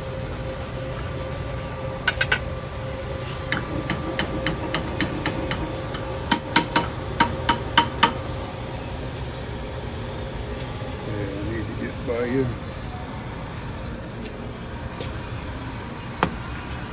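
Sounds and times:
steady shop hum: 0.0 - 16.9.

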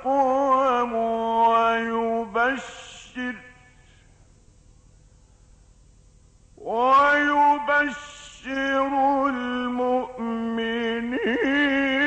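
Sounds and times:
man chanting recitation: 0.0 - 4.0, 6.6 - 12.0
faint background noise: 0.0 - 12.0.

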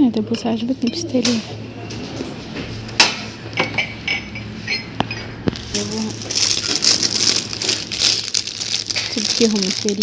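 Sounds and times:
goods clinking on store shelf: 1.2 - 7.8
plastic bag crinkling: 5.5 - 10.0.

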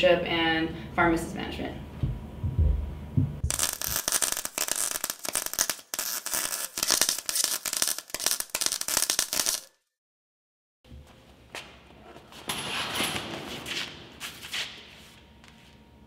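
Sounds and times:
arc welding crackle: 3.5 - 9.8.

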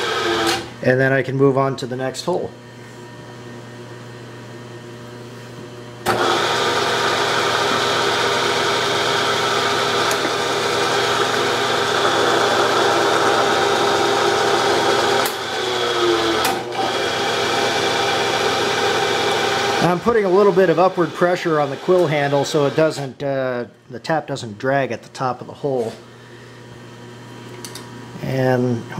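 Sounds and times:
milling machine spindle motor: 0.0 - 0.7, 6.0 - 23.1.

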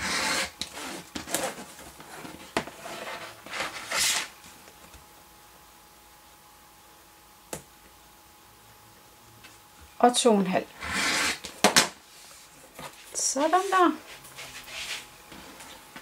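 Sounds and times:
rotary cutter slicing fabric: 0.0 - 1.4, 10.8 - 11.5
ruler scraping across a mat: 0.0 - 4.3, 10.8 - 11.5, 14.4 - 15.5.

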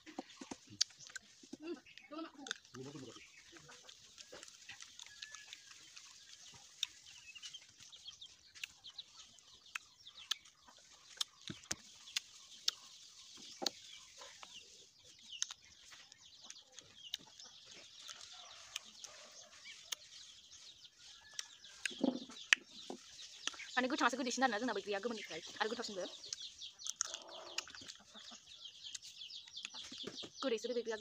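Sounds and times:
fruit being bitten and chewed: 0.0 - 23.8, 25.8 - 30.1
birds chirping: 0.0 - 31.0.

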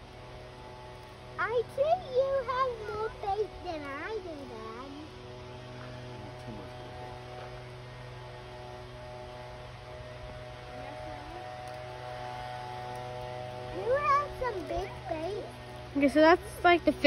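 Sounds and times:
steady electrical hum: 0.0 - 17.0
faint voices: 10.6 - 12.8.

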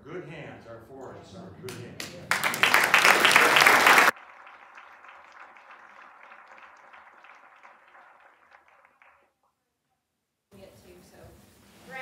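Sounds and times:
audience applauding: 1.7 - 9.4.

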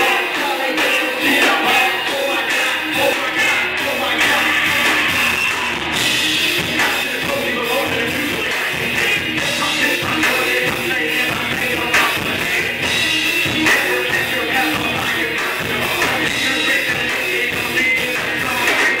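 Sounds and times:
drum kit: 0.0 - 19.0
electric guitar: 0.0 - 19.0
person singing into a microphone: 0.0 - 19.0.

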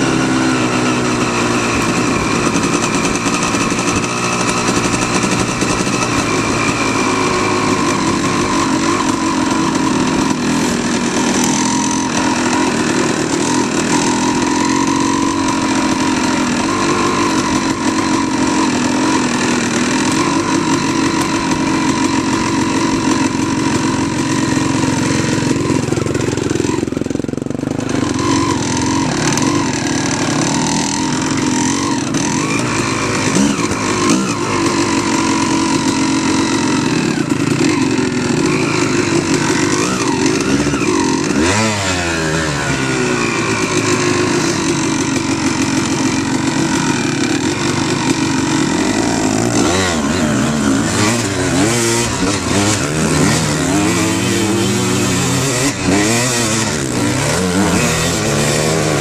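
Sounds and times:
off-road motorcycle engine running: 0.0 - 59.0.

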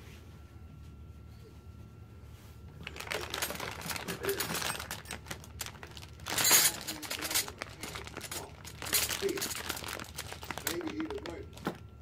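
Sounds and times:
plastic bags crinkling: 2.7 - 12.0
metal tools clinking: 2.8 - 11.4.

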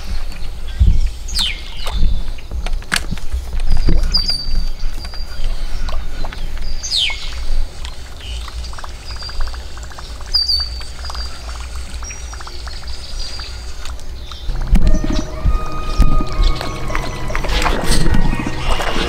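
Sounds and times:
songbirds chirping: 0.0 - 19.0
steady low rumble: 14.4 - 19.0.

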